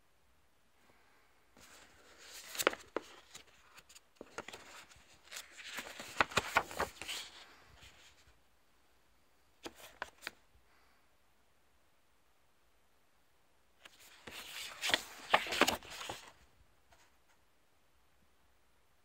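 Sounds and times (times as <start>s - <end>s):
paper pages rustling: 1.6s - 8.3s, 9.6s - 10.4s, 13.8s - 17.2s.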